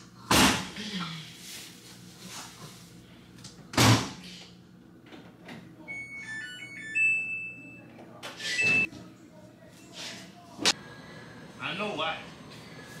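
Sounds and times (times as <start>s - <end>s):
electronic beep tune: 8.4s - 8.9s.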